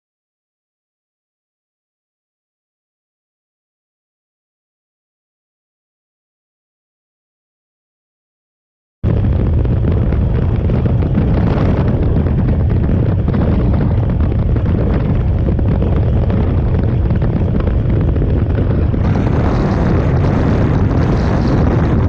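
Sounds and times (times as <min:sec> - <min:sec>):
wind buffeting microphone: 0:09.0 - 0:22.0
motorcycle engine roar: 0:09.1 - 0:22.0.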